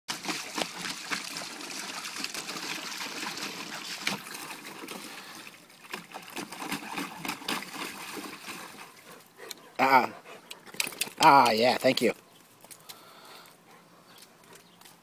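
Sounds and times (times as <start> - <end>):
dog splashing in pool water: 0.1 - 9.3
water trickling: 0.1 - 9.3.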